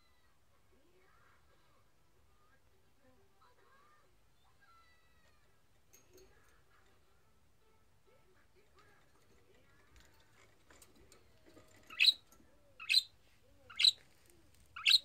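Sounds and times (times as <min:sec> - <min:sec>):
budgerigar chirping: 0:11.9 - 0:12.2, 0:12.8 - 0:13.1, 0:13.7 - 0:14.0, 0:14.8 - 0:15.0.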